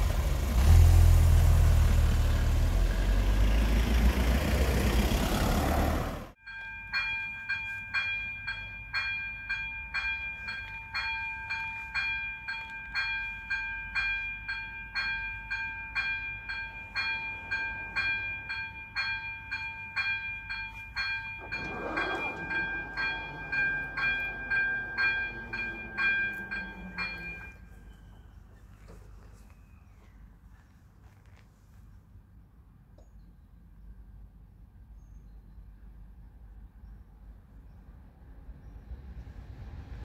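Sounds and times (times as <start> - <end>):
level-crossing warning bell: 6.4 - 28.4
barrier motor hum: 21.1 - 28.2.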